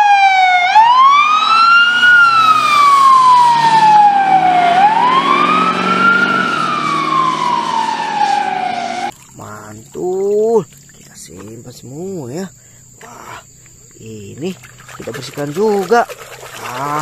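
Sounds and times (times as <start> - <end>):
ambulance siren wailing: 0.0 - 9.1
vehicle engine running: 1.9 - 9.1.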